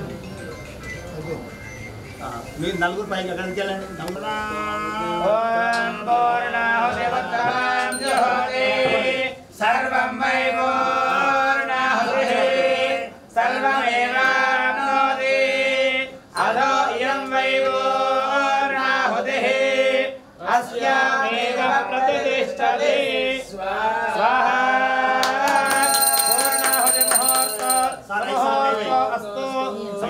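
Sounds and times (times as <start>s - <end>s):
men singing a devotional chant: 3.4s - 30.0s
high ringing strokes: 7.9s - 8.6s, 25.6s - 28.1s.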